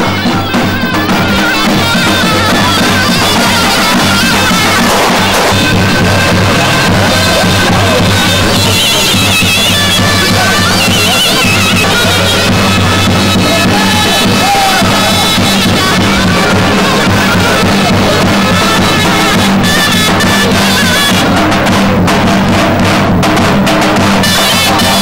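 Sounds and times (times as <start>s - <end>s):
steady drum beat: 0.0s - 25.0s
high wavering melody: 0.3s - 21.1s.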